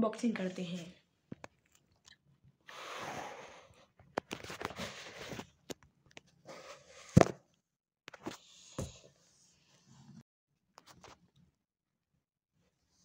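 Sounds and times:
rustling and scraping: 0:04.1 - 0:05.8.

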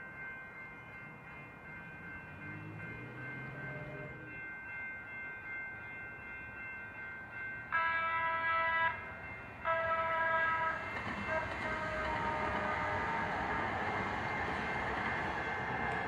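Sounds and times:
approaching train noise: 0:00.0 - 0:16.0
train horn blasts: 0:07.7 - 0:13.7.

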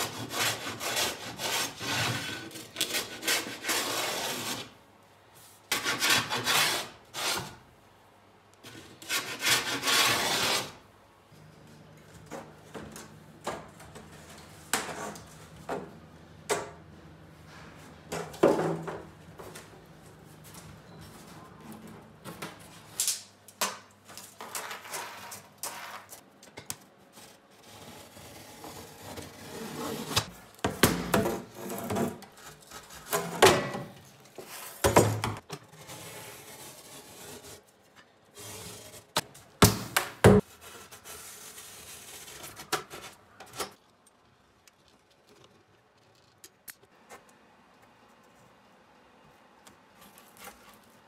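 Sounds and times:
foam panels rubbing and scraping: 0:00.0 - 0:04.8, 0:05.7 - 0:07.6, 0:08.6 - 0:10.8, 0:27.1 - 0:30.4, 0:35.6 - 0:39.2.

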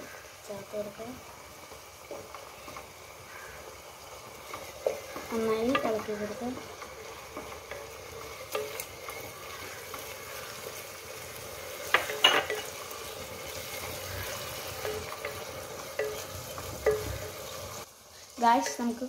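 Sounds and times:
vegetables sizzling in a frying pan: 0:00.0 - 0:19.0
wooden spatula scraping pan: 0:04.4 - 0:17.5
spatula knocking against pan: 0:14.8 - 0:17.3.

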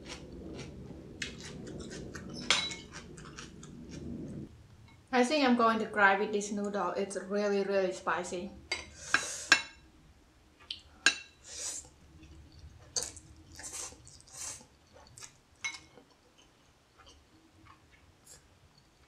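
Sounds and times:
chewing: 0:00.0 - 0:04.0, 0:12.2 - 0:19.0.

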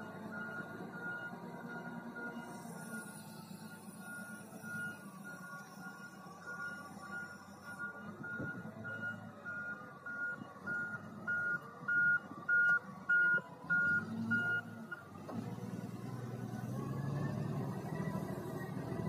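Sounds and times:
reversing alarm beeping: 0:00.0 - 0:15.0
diesel engine running: 0:00.0 - 0:19.0.

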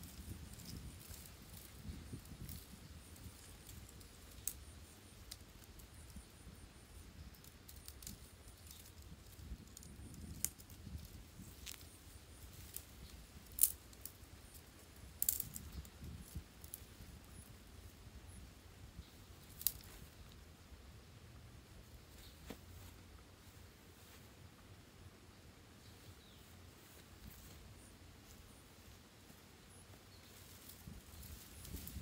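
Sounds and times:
dry branches rustling and clicking: 0:00.0 - 0:18.4, 0:19.0 - 0:20.4, 0:26.9 - 0:32.0.

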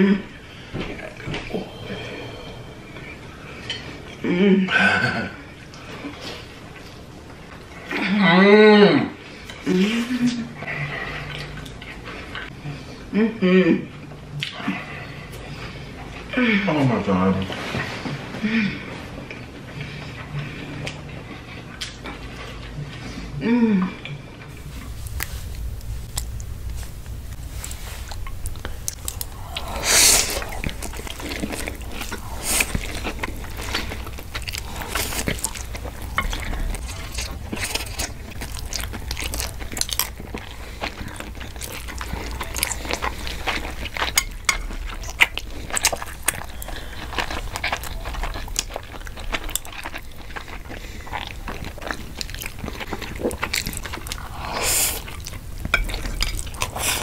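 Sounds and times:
low steady hum: 0:00.0 - 0:57.0
wet chewing and slurping: 0:24.5 - 0:57.0.

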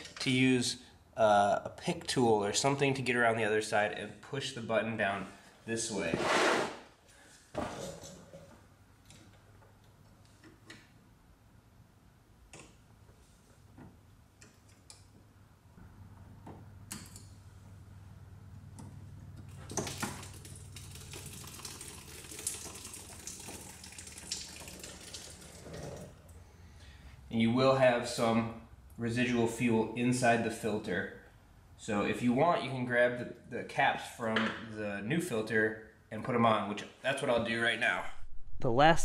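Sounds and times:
fuel trickling from a line: 0:19.5 - 0:26.4.

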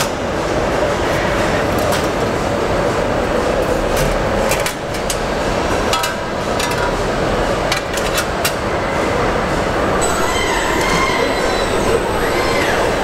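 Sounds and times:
machinery din: 0:10.0 - 0:13.0.

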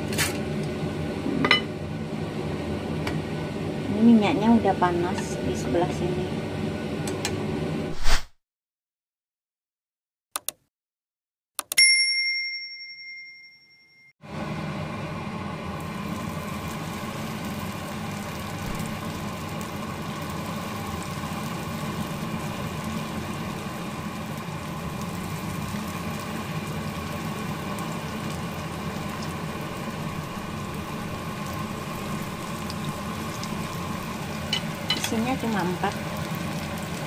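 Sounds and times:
fritters sizzling in hot oil: 0:15.7 - 0:37.0.

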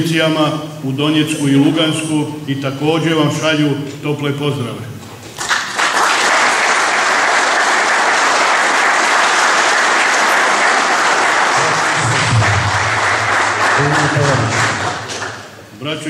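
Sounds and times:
audience applauding: 0:05.4 - 0:15.6.

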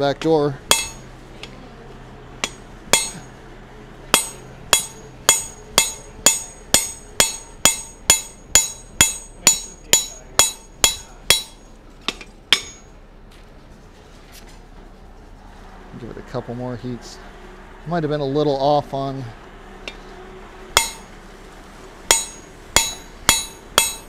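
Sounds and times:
hammer striking hot steel on anvil: 0:00.2 - 0:01.5, 0:02.4 - 0:03.4, 0:04.1 - 0:12.9, 0:19.8 - 0:20.0, 0:20.8 - 0:21.2, 0:22.1 - 0:24.0.

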